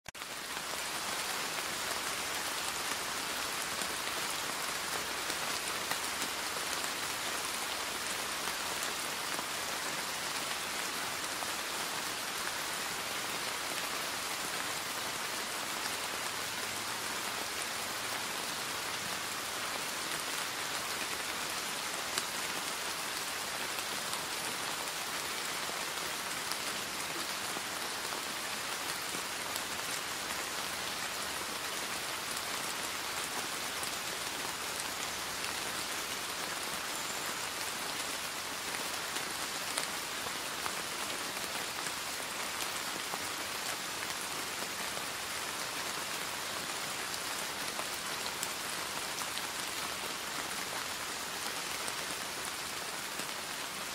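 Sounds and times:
rain falling on leaves: 0:00.1 - 0:53.9.

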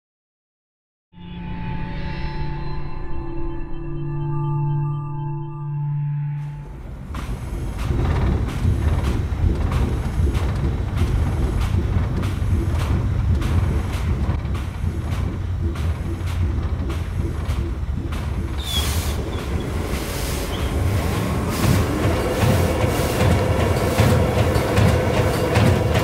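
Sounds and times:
deep machinery rumble: 0:06.4 - 0:26.0
mechanical knocks: 0:06.8 - 0:26.0
steam hiss: 0:07.1 - 0:26.0.

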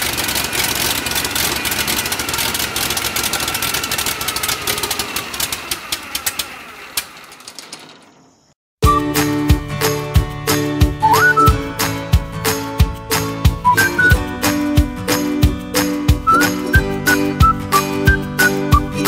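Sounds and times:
propeller aircraft engine running: 0:00.0 - 0:08.0, 0:08.9 - 0:18.9.

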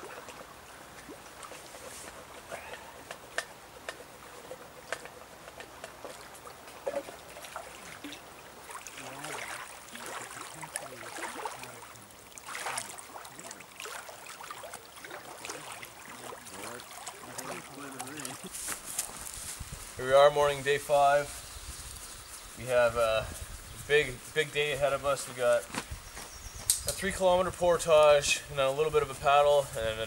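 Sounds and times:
small waves lapping on rocks: 0:05.8 - 0:18.5.

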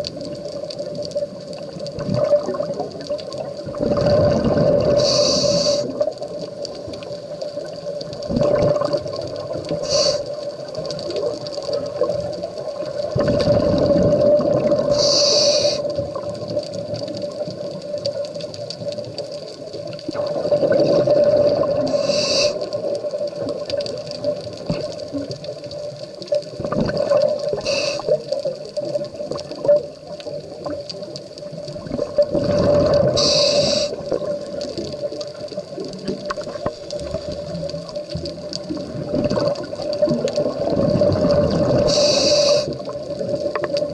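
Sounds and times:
exhaled bubbles rumbling: 0:00.0 - 0:43.9
regulator hissing inhalation: 0:04.9 - 0:06.1, 0:09.8 - 0:10.4, 0:14.9 - 0:16.0, 0:21.8 - 0:22.9, 0:27.5 - 0:28.3, 0:33.0 - 0:34.1, 0:41.8 - 0:42.9.

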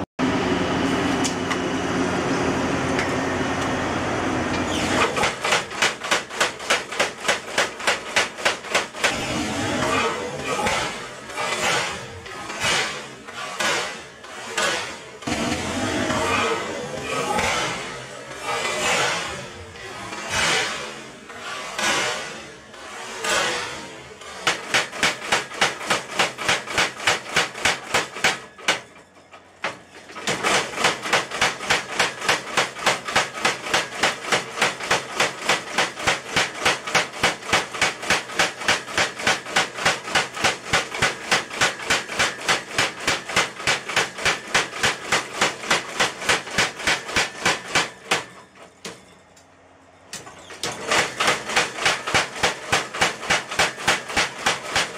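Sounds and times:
power hammer pounding hot steel: 0:00.0 - 0:49.4, 0:50.1 - 0:54.9.

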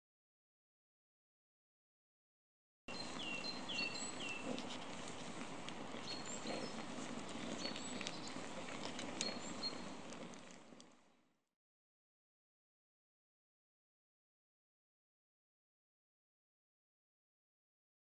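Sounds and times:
birds chirping: 0:02.9 - 0:10.9
wood fire crackling and popping: 0:03.0 - 0:11.1.

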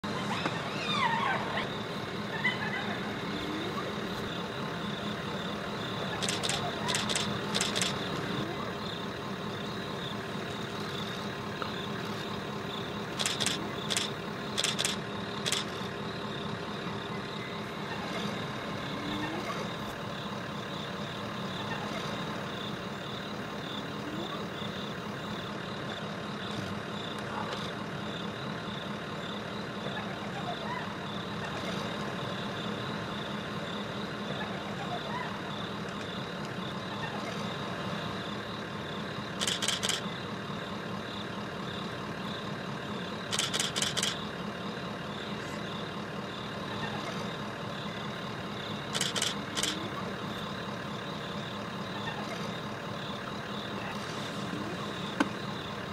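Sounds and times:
constant high whine: 0:00.0 - 0:55.9
vehicle engine idling: 0:00.0 - 0:55.9
rapid clicking bursts: 0:06.2 - 0:08.2, 0:13.1 - 0:15.8, 0:39.4 - 0:40.0, 0:43.3 - 0:44.2, 0:48.9 - 0:49.8.

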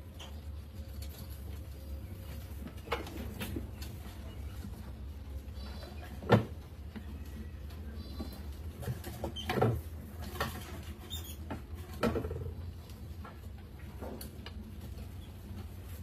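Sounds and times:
rats scrabbling and clicking: 0:05.5 - 0:16.0
rats squeaking: 0:07.1 - 0:11.6.

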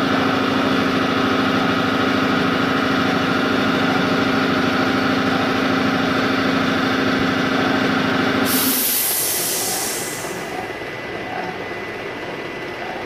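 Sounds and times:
loud hiss: 0:08.4 - 0:10.6.

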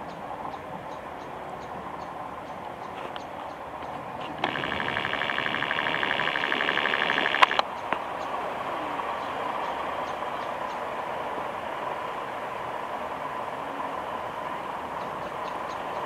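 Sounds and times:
pulsing high ringing: 0:04.4 - 0:07.6
sharp click: 0:04.4 - 0:07.7
train running with thin whine: 0:04.4 - 0:16.0.

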